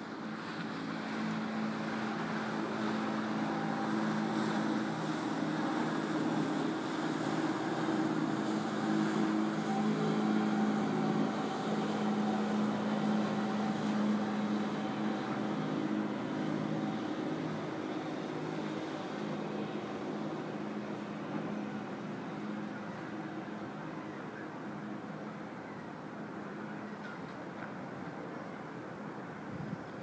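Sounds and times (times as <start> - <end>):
steady rushing noise: 0.0 - 25.5
ship machinery hum: 0.0 - 30.0.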